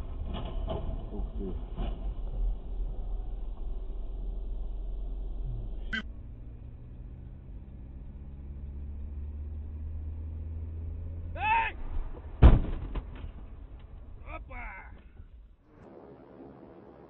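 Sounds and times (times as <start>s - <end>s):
car engine hum inside cabin: 1.1s - 12.4s
vehicle collision bang: 11.8s - 14.2s.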